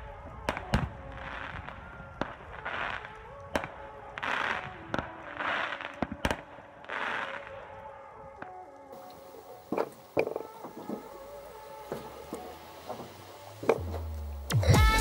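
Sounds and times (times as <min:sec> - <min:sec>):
hissy swells: 0:09.0 - 0:15.0.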